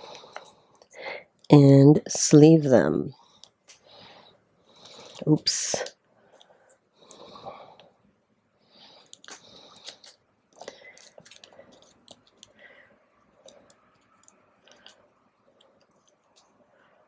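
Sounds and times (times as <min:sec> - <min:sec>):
plastic sleeves crinkling: 0:09.1 - 0:12.5.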